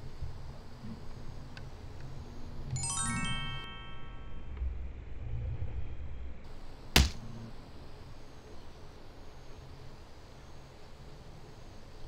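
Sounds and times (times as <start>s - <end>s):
bell-like chime tones: 2.8s - 4.6s
low rumble: 4.5s - 6.5s.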